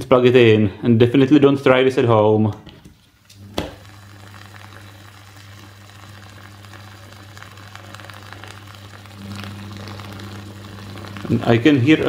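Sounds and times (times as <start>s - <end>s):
water heater mains hum: 0.0s - 12.0s
faint fizzing bubbles: 3.4s - 12.0s.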